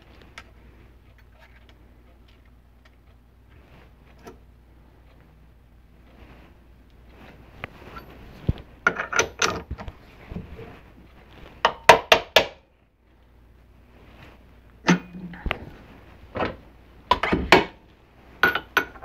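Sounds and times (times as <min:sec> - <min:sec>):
metal vise clanking: 0:14.9 - 0:15.2.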